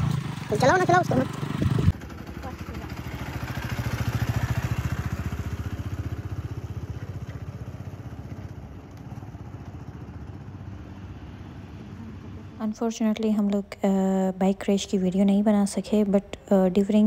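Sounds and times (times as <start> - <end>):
motorcycle riding past: 0.0 - 12.9.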